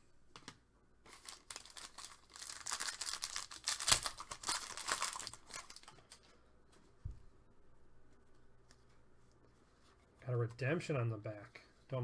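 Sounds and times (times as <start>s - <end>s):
foil pack ripping: 1.1s - 5.9s
foil card pack crinkling: 1.1s - 6.2s.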